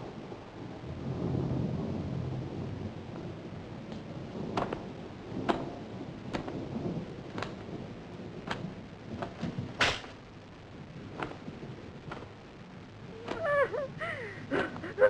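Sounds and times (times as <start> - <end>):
low steady rumble: 0.0 - 15.0
sharp knocks or drips: 5.4 - 6.6.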